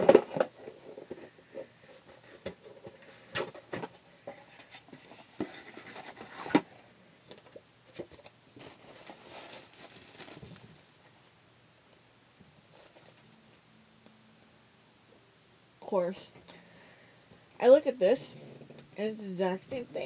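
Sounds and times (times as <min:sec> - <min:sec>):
cardboard box rustling and scraping: 0:04.4 - 0:06.7.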